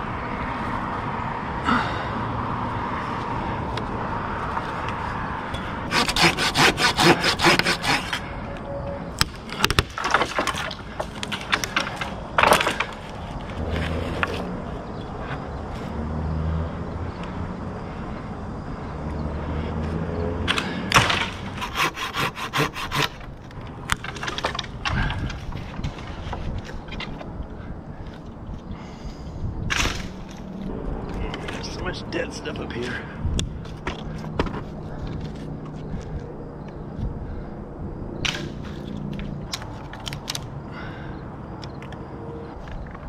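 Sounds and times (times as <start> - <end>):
dry wood rasping and cracking: 5.8 - 8.2, 20.5 - 27.3.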